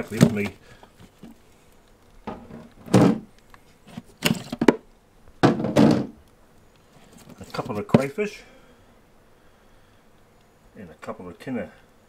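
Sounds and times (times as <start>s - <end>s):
ice packs clunking in cooler: 0.0s - 1.4s.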